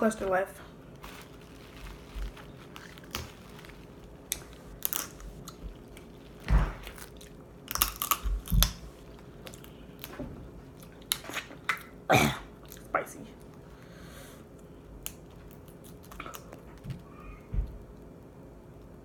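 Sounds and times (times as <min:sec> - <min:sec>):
crab shells cracking: 0:02.6 - 0:10.1.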